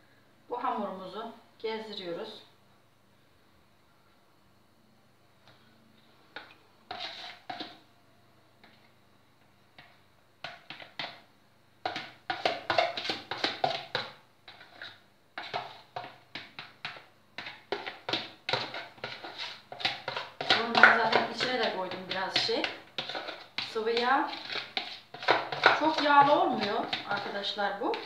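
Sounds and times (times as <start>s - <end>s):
spoon scraping plastic bowl: 6.4s - 7.8s, 11.9s - 28.0s.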